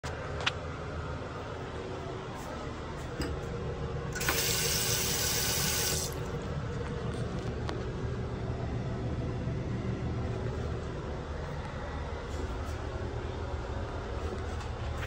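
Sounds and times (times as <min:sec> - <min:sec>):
faucet click: 0:04.2 - 0:04.6
water running into sink: 0:04.2 - 0:06.2.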